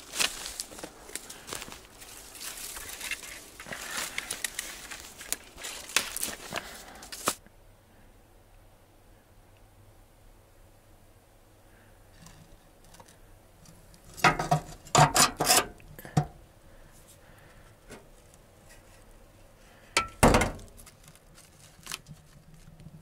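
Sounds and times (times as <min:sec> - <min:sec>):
metal wood stove clinking: 0:14.1 - 0:16.4, 0:20.0 - 0:20.7.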